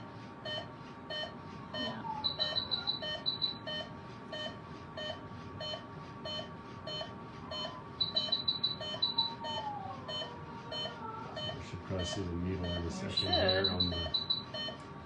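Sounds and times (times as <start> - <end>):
monitor beeping: 0.5 - 14.8
higher-pitched beeps: 1.8 - 3.7, 8.0 - 14.6.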